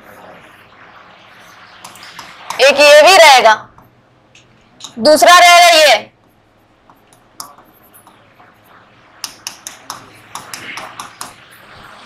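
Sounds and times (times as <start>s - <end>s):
stylus tapping on screen: 9.2s - 11.4s.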